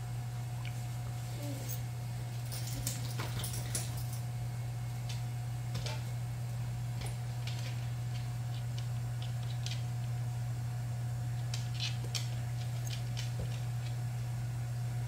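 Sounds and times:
dog claws clicking on wooden floor: 7.0s - 9.9s, 11.4s - 14.0s.

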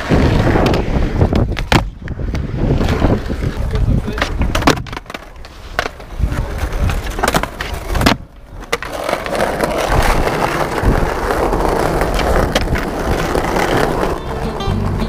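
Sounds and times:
skateboard clacking on ground: 0.0s - 15.0s
skateboard wheels rolling on paving: 0.0s - 15.0s.

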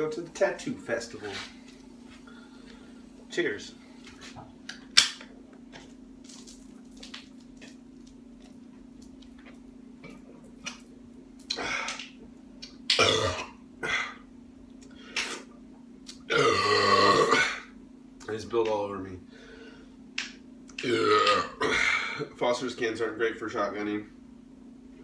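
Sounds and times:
person coughing and gasping: 20.8s - 22.3s.

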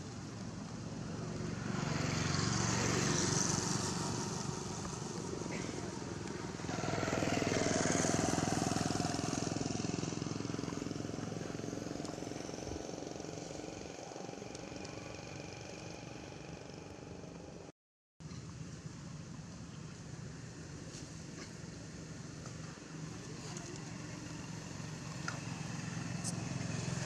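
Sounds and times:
vehicle passing: 1.4s - 17.1s, 23.2s - 27.0s.

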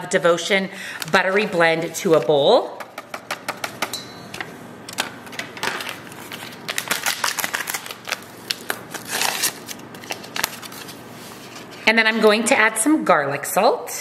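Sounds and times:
powder packet crinkling: 5.7s - 11.0s.

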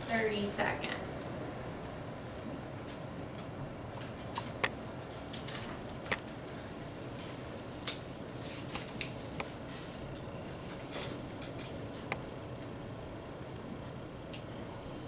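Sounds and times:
room hum: 0.0s - 15.0s
pencil and paper clicks and rustles: 7.1s - 9.5s.

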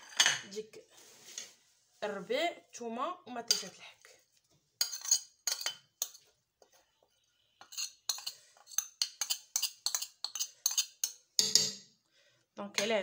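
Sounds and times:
metal spoon clinking on plate: 3.5s - 3.7s, 4.8s - 6.2s, 7.6s - 11.9s.

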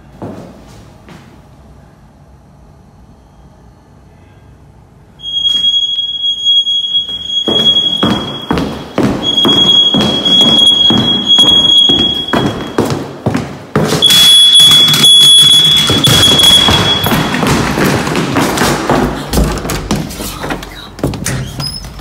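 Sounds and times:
high electronic tone: 5.2s - 12.9s, 14.0s - 17.7s
footsteps on wooden floor: 7.1s - 14.1s, 14.8s - 22.0s.

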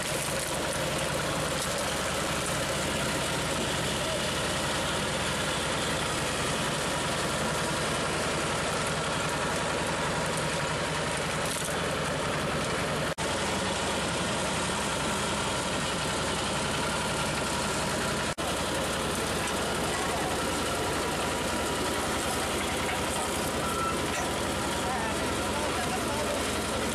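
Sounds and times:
road roller engine droning: 0.0s - 26.9s.

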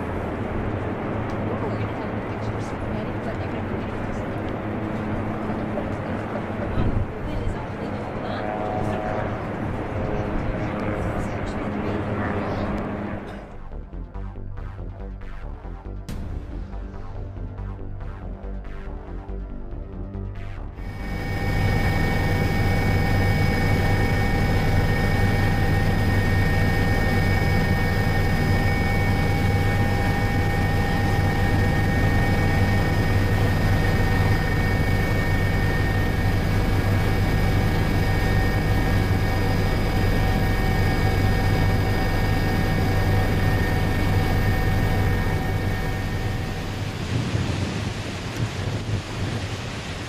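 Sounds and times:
aircraft engine drone in cabin: 0.0s - 15.4s, 20.1s - 50.0s.

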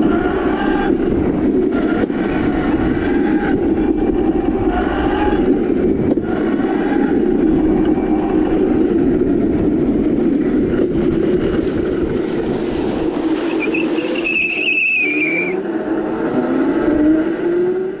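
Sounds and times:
tyre squealing: 13.4s - 15.6s.

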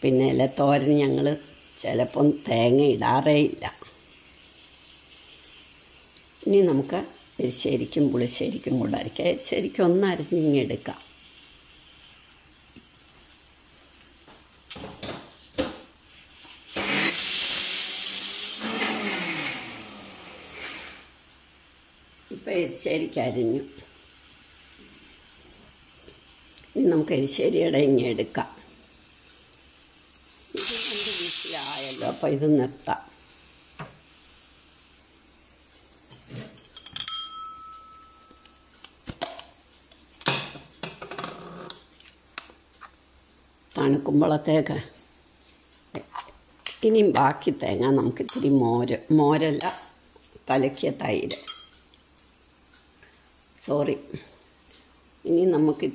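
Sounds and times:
mixer grinder motor running: 16.8s - 21.0s
dishes knocking and scraping: 36.1s - 37.2s, 40.2s - 41.5s.

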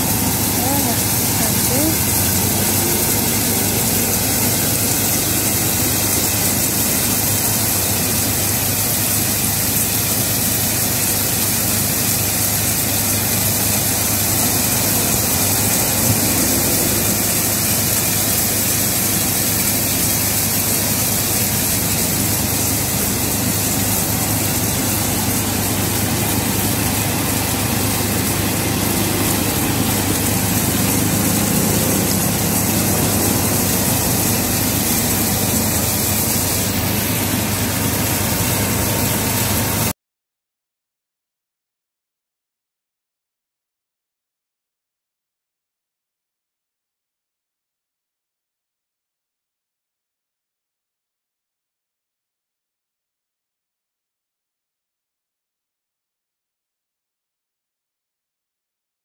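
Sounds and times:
low motor hum: 0.0s - 8.1s, 13.9s - 18.4s, 21.8s - 39.8s
burner flame hissing: 0.0s - 39.9s.

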